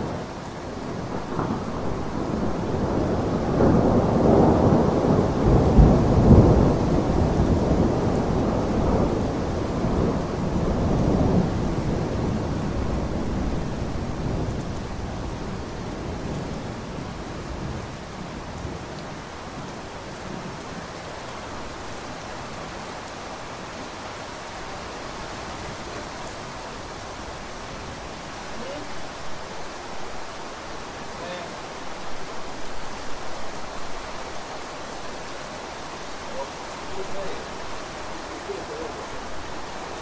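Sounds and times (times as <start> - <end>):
low rumble of thunder: 0.0 - 28.6
steady rain falling: 0.0 - 40.0.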